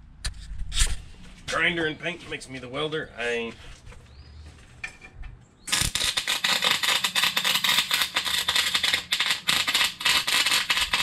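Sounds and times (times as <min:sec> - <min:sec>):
arc welding crackle: 0:05.7 - 0:11.0.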